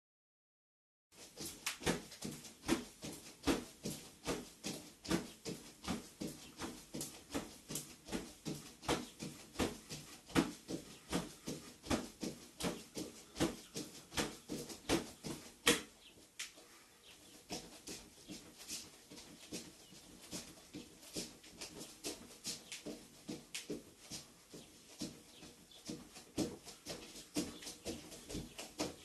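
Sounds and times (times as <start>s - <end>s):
feet thumping on wooden floor: 1.4s - 16.0s.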